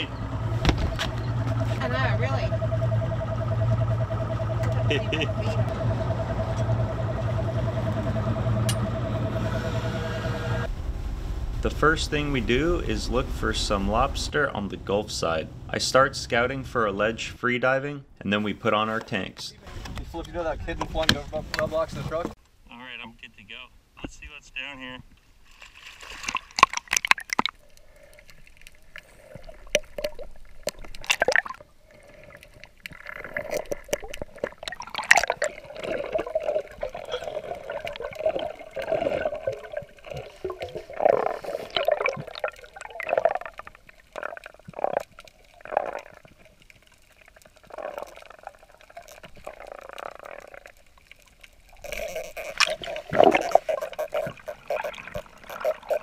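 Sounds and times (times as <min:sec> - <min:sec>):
muffled underwater sloshing: 0:00.0 - 0:15.8, 0:25.4 - 0:56.0
splashy burst: 0:10.6 - 0:14.5.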